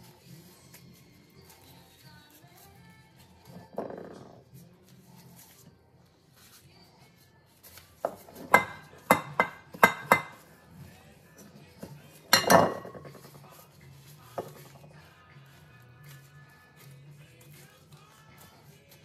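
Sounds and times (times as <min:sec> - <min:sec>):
utensil clinking against bowl: 0:08.1 - 0:10.5, 0:11.4 - 0:13.4.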